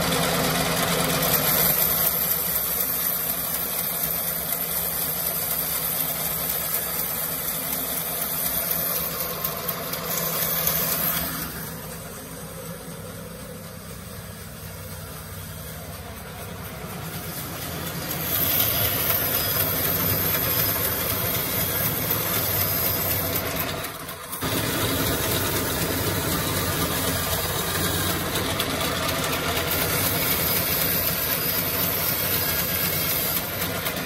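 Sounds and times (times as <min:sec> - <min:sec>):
bandsaw cutting wood: 0:24.4 - 0:34.0.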